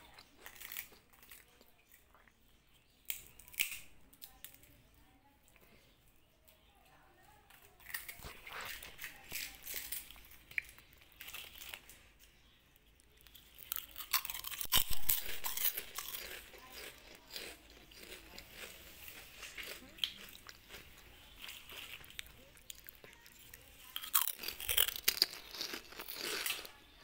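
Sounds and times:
cats crunching snack: 0.0 - 2.3, 7.5 - 12.2, 13.2 - 27.0.

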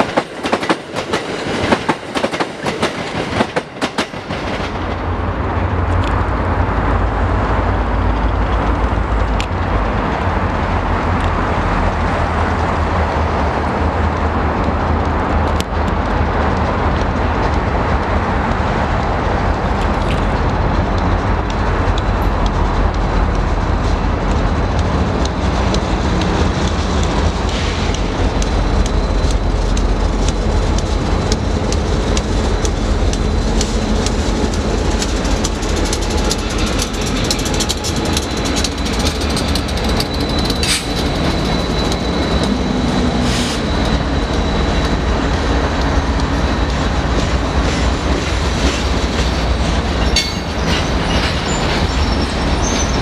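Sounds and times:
diesel locomotives rumbling: 0.0 - 53.0
wheels clicking over rail joints: 12.4 - 53.0
faint high wheel squeal: 37.8 - 45.3, 50.0 - 53.0.

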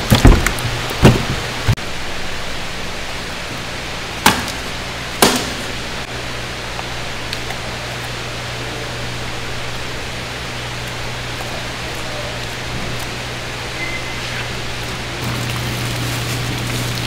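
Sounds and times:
sharp knocks: 0.0 - 1.8, 4.2 - 5.8
running water rushing: 0.0 - 17.0.

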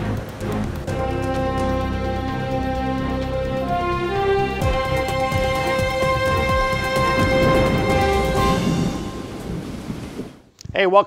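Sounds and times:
dramatic theme music: 0.0 - 10.2.

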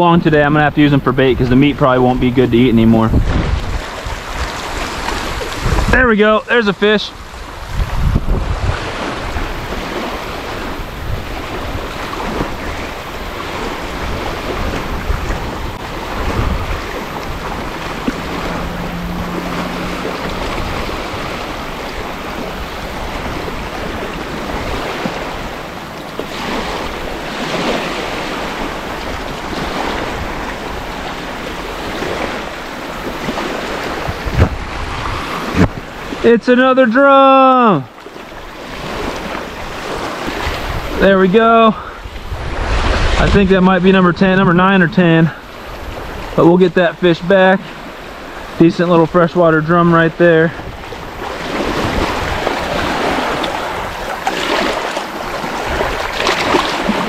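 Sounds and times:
wind buffeting microphone: 0.0 - 36.3, 38.2 - 46.8, 49.2 - 57.0
waves washing onto beach: 0.0 - 57.0.

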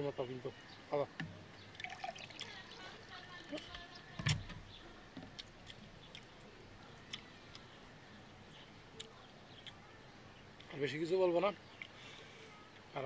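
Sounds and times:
faint eating clicks: 5.2 - 7.8, 8.6 - 10.0, 11.7 - 12.0.

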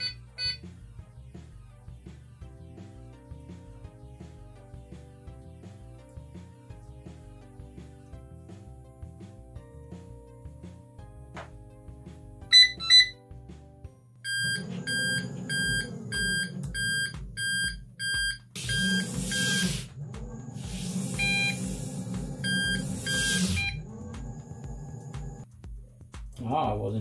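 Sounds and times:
buzzer beeping: 0.0 - 0.6, 12.5 - 13.2, 14.3 - 25.4.

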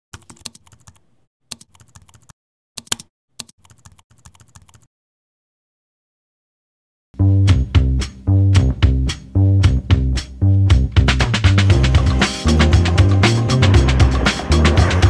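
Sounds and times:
keyboard typing clicks: 0.1 - 4.9.

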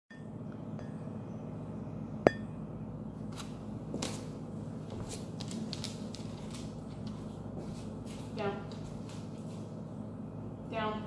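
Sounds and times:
steady low hum: 0.1 - 11.0
soft scuffs: 6.5 - 9.7.

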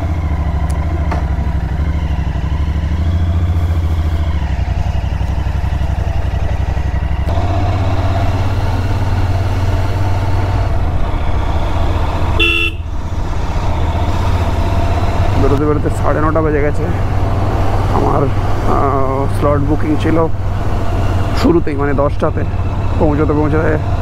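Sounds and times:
motorcycle engine running: 0.0 - 24.0
short horn beep: 12.4 - 12.8.

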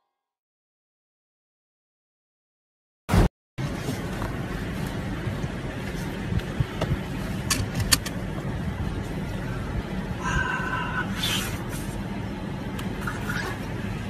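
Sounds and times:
car cabin hum: 3.1 - 14.0.

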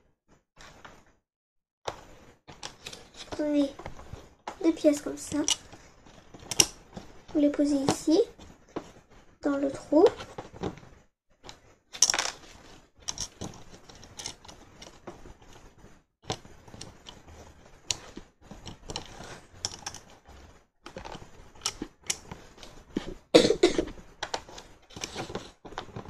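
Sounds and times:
plastic bricks clicking: 6.4 - 6.8, 12.0 - 12.4, 13.0 - 15.0, 17.9 - 20.1.

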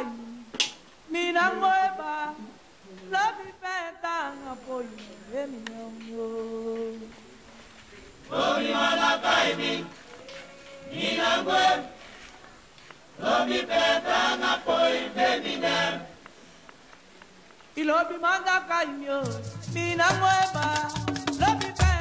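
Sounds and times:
voices singing a chant: 0.0 - 0.5, 1.1 - 12.3, 13.1 - 16.4, 17.8 - 22.0.

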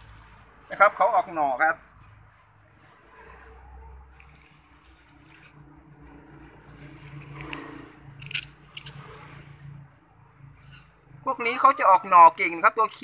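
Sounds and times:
fingers rubbing stiff plant leaves: 1.8 - 5.6.

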